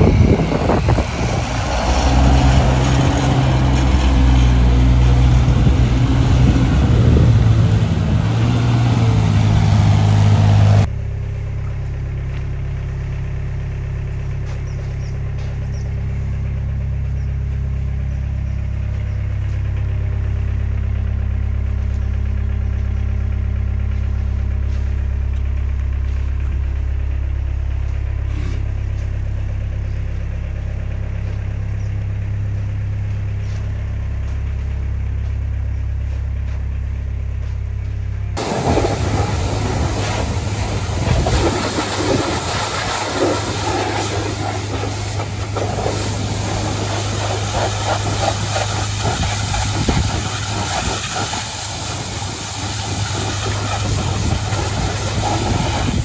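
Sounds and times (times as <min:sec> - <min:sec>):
tractor engine idling: 0:00.0 - 0:56.0
pressure washer spraying: 0:38.4 - 0:56.0.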